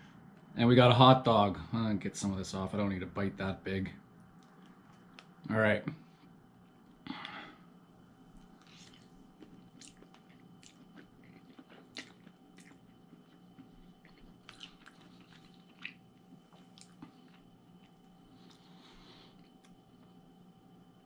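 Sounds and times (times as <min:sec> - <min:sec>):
low room hum: 0:00.0 - 0:21.0
person chewing food: 0:08.4 - 0:20.2
small wet mouth clicks: 0:09.8 - 0:10.8.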